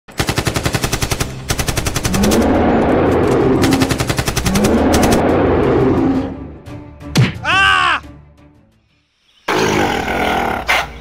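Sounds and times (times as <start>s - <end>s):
machine-gun fire bursts: 0.2s - 2.4s, 3.6s - 5.1s
rushing noise with low rising tone: 2.2s - 6.8s.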